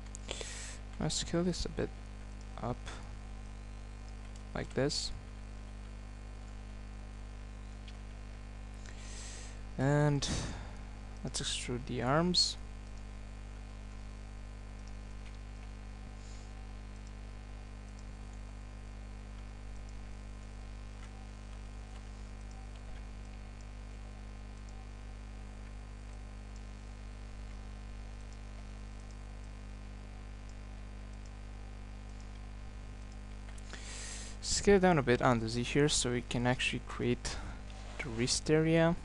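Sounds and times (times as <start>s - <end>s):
electrical mains hum: 0.0s - 39.0s
faint mouse clicks: 21.0s - 23.7s.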